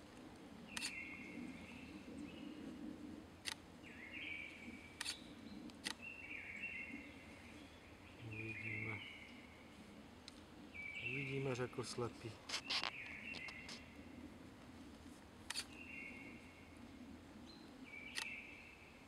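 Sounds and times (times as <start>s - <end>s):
camera shutter clicks: 18.1s - 18.3s.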